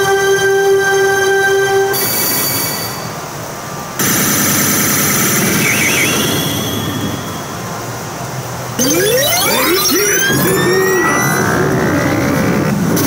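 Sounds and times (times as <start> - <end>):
pachinko machine electronic sound effects: 4.0 - 8.0, 8.8 - 12.7
warbling electronic chirp: 5.5 - 7.8, 8.8 - 12.4
rising siren-like electronic sweep: 8.8 - 12.7.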